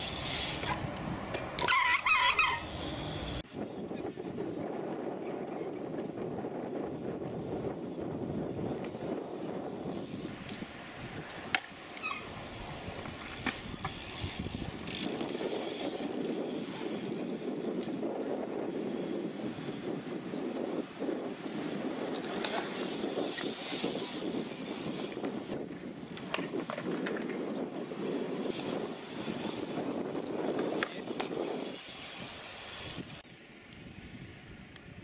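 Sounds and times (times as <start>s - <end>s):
bike clicks and knocks: 0.0s - 3.4s, 8.7s - 18.0s, 21.8s - 33.8s
bike tyres rolling on concrete: 0.0s - 3.5s, 4.4s - 35.0s.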